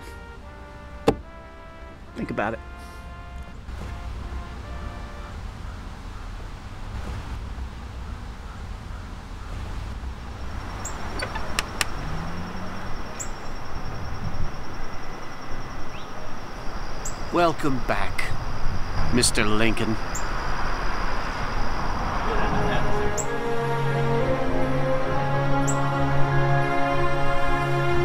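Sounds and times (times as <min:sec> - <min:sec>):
car engine and road rumble: 0:00.0 - 0:24.5
sharp clicks: 0:11.1 - 0:12.0.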